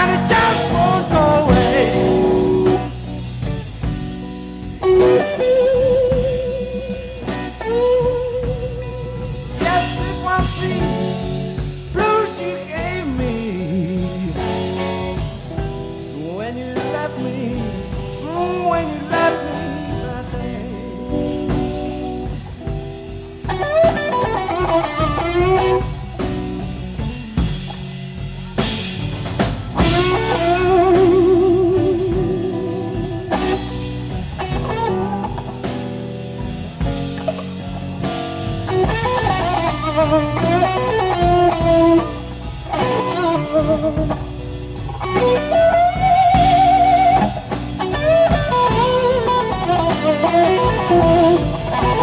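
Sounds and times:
live blues band: 0.0s - 52.0s
electric guitar solo: 4.8s - 11.6s, 21.1s - 26.7s, 29.7s - 52.0s.

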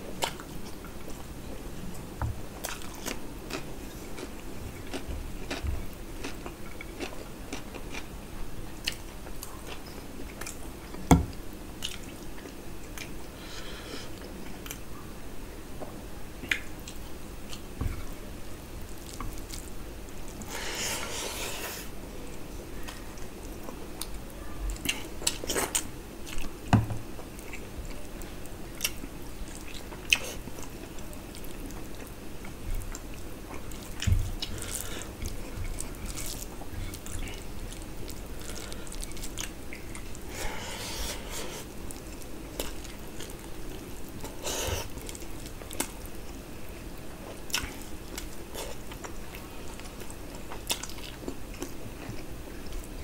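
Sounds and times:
wet chewing and lip smacks: 16.4s - 17.6s, 47.5s - 52.8s.

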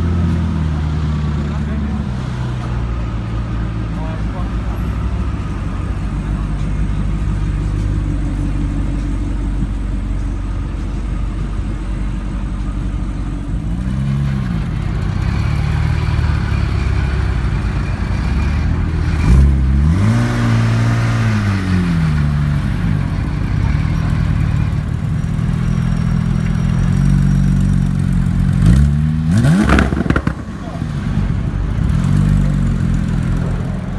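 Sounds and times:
sports car engine revving: 18.1s - 23.0s, 27.0s - 33.8s.

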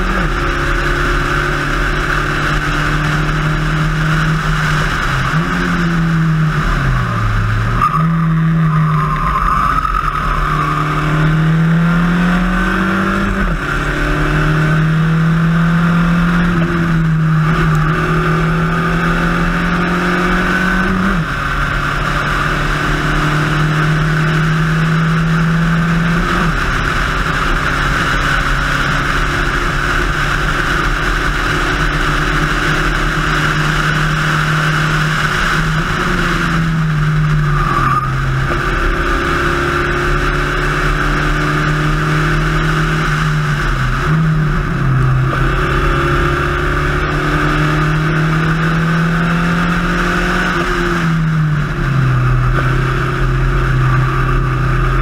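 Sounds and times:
race car engine revving: 0.0s - 55.0s
wind and road noise: 0.0s - 55.0s.

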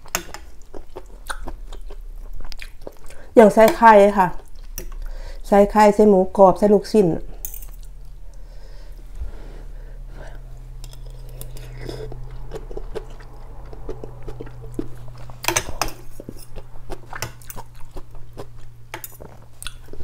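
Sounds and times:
chewing and wet mouth sounds: 0.0s - 5.2s, 10.3s - 20.0s
low electrical hum: 0.0s - 20.0s.

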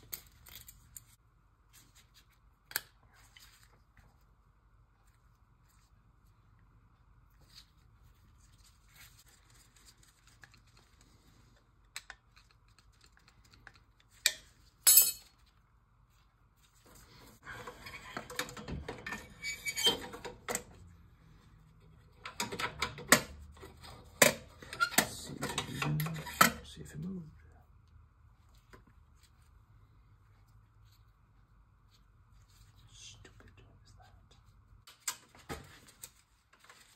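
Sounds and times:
metal tools clinking: 14.9s - 15.4s.

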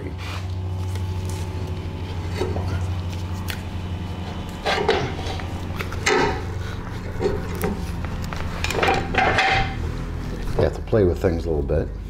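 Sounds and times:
steady low hum: 0.0s - 12.0s
metal parts clunking and scraping: 2.2s - 3.0s, 4.2s - 9.9s.

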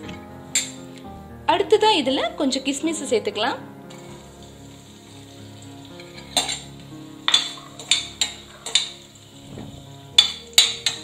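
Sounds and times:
light sizzle: 0.0s - 11.0s
metal spoon clinking on pot: 7.3s - 9.0s, 10.2s - 11.0s.

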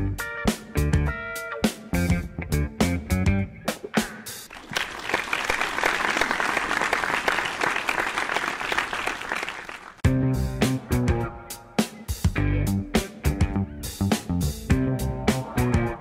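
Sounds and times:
music with bass and guitar: 0.0s - 4.5s, 10.0s - 16.0s
audience applause: 4.5s - 10.0s.

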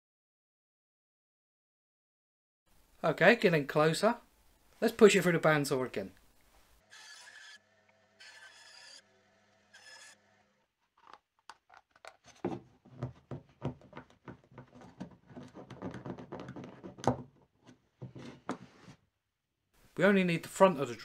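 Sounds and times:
wooden parts clicking and knocking: 11.0s - 18.2s.

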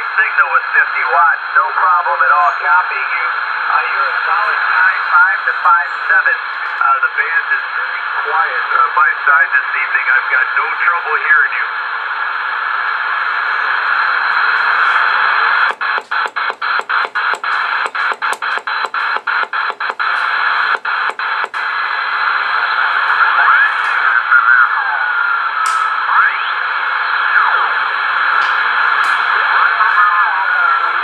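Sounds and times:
radio static hiss: 0.0s - 31.0s.

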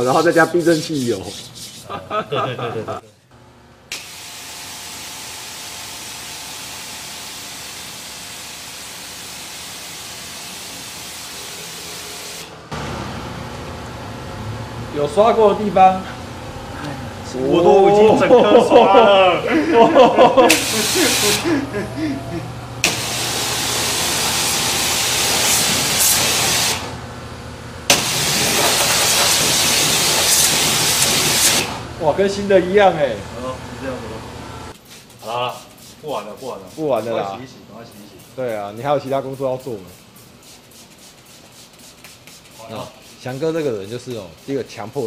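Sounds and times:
pressure washer spraying: 3.9s - 12.5s, 20.3s - 21.6s, 22.8s - 26.9s, 27.9s - 31.8s, 35.3s - 37.1s, 37.9s - 45.0s
water jet spraying hiss: 20.0s - 21.6s, 22.8s - 26.9s, 27.9s - 31.8s.

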